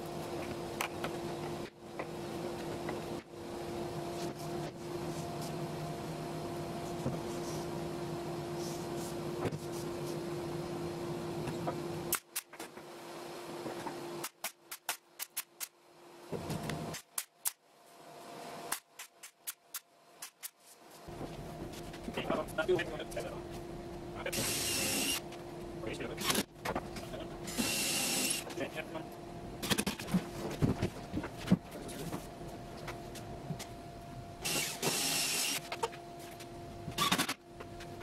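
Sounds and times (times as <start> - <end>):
mechanical shop hum: 0.0 - 38.0
pneumatic nailer firing: 24.3 - 25.2, 34.4 - 35.7, 37.0 - 37.4.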